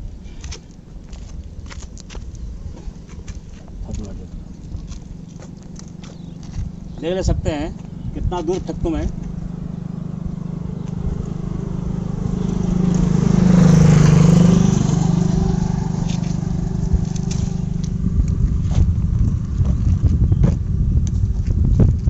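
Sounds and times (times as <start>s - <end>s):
vehicle engine passing: 2.6s - 21.4s.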